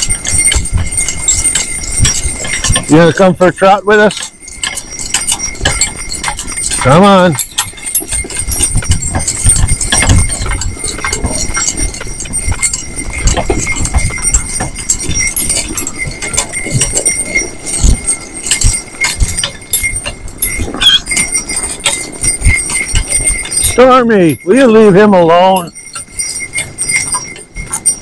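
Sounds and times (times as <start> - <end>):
harness clinking and rattling: 0.0 - 28.0
horse hoofbeats on snow: 0.0 - 28.0.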